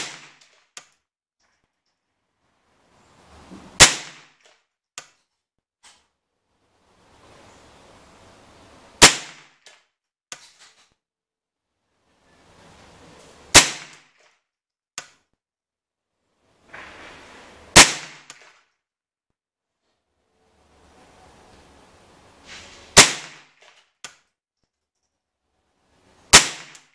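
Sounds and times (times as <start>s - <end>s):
rifle shots: 0.0s - 0.4s, 3.8s - 4.3s, 9.0s - 9.5s, 13.5s - 14.0s, 17.7s - 18.3s, 22.9s - 23.5s, 26.3s - 26.8s.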